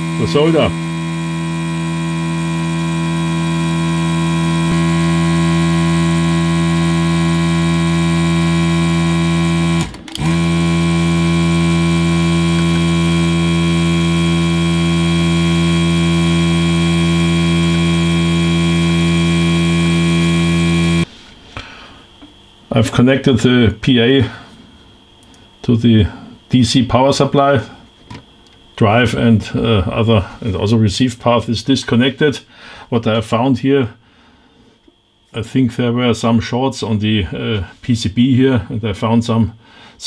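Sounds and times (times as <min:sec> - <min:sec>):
vacuum pump humming: 0:00.0 - 0:31.0.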